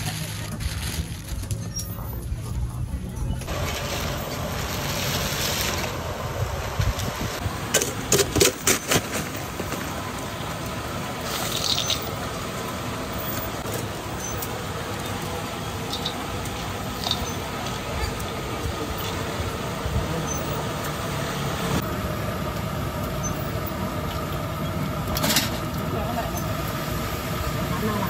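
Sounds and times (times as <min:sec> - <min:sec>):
plastic bag rustling: 0:00.0 - 0:02.1
steady low rumble: 0:00.0 - 0:08.6.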